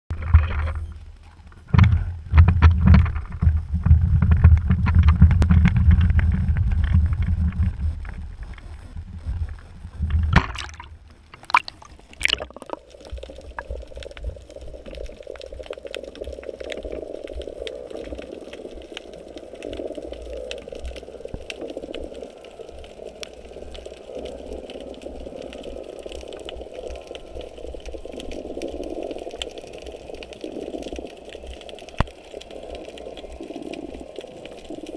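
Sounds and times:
wind buffeting camera: 0.1 - 12.4
muffled underwater hum: 0.1 - 34.9
splashes into water: 10.4 - 12.8.

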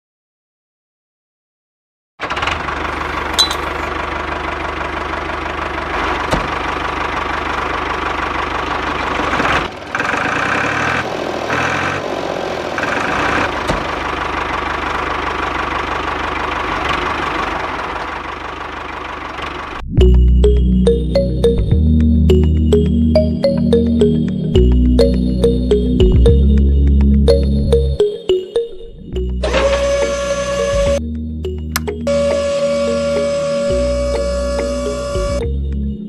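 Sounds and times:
tractor engine idling: 2.2 - 21.5.

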